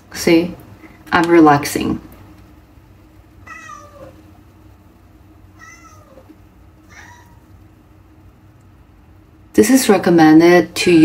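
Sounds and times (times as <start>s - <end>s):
cat meowing faintly: 3.4s - 4.2s, 5.6s - 7.6s.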